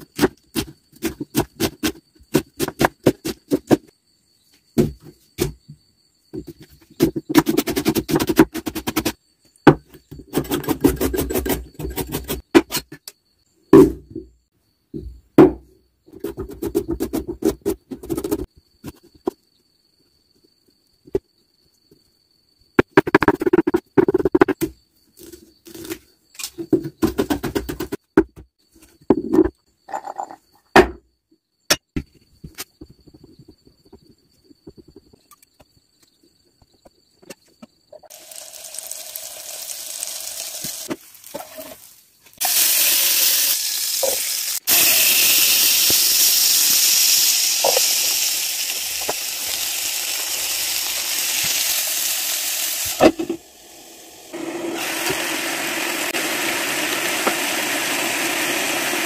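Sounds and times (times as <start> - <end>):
butter sizzling in a frying pan: 38.1 - 59.0.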